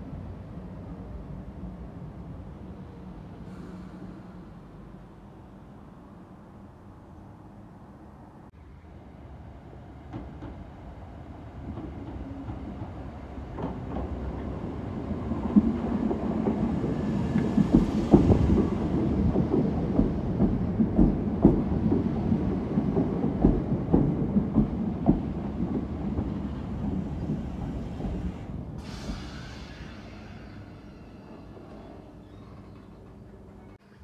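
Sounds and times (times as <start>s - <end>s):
train rumble: 9.2s - 34.0s.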